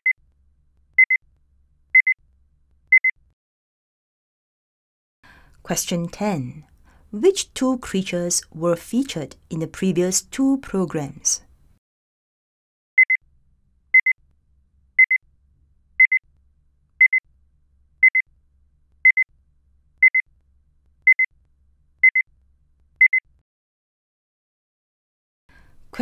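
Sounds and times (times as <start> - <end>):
electronic timer double beeps: 2.0 - 2.2, 14.0 - 14.2, 15.0 - 15.2, 16.0 - 16.2, 17.0 - 17.2, 18.0 - 18.2, 19.0 - 19.2, 20.0 - 20.2, 21.1 - 21.3, 22.0 - 22.2.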